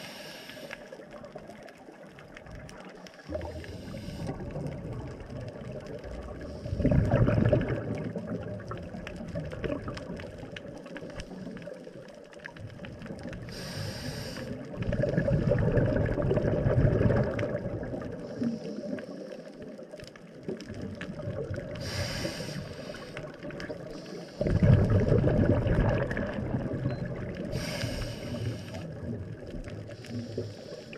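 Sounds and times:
regulator inhale hiss: 0.0s - 1.0s, 3.3s - 4.6s, 13.5s - 14.8s, 18.2s - 19.7s, 21.7s - 24.7s, 27.5s - 29.0s, 29.9s - 30.9s
exhaled bubbles rushing: 1.2s - 11.6s, 14.5s - 18.6s, 20.4s - 22.1s, 22.8s - 27.6s, 28.8s - 30.2s.

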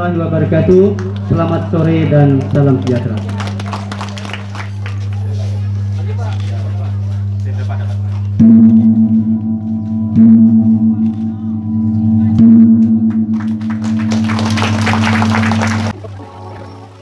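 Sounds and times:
applause: 0.9s - 5.6s, 13.3s - 16.0s
gong struck with mallet: 8.4s - 16.5s.

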